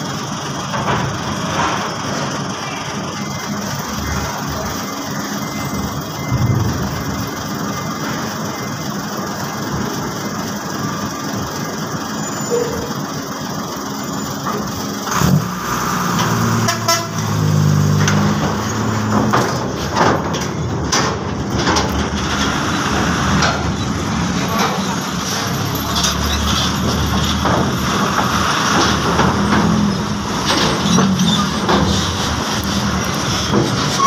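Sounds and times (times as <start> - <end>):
truck engine under load: 0.0 - 34.0
knocks of wheels on deck plates: 17.8 - 23.8.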